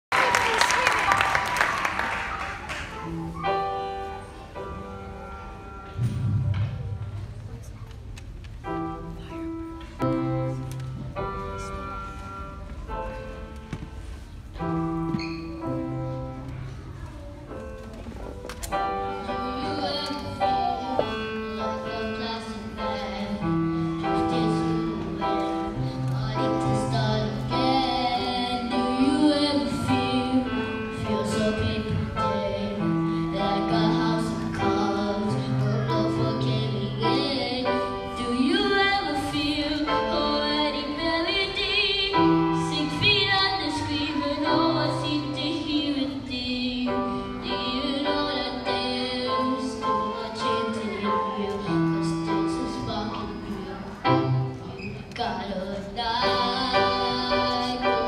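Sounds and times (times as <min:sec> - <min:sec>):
instrumental accompaniment: 0:01.2 - 0:54.8.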